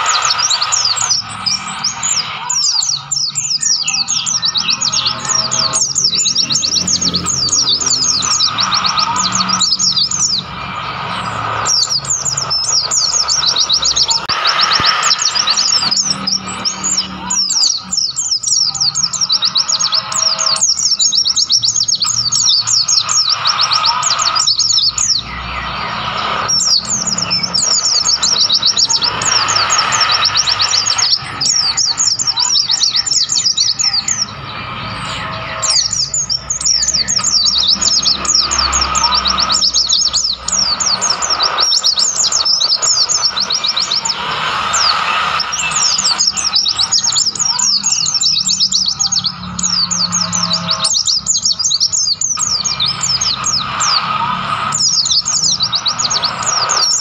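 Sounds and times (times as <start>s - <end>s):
birds twittering: 0.0s - 57.0s.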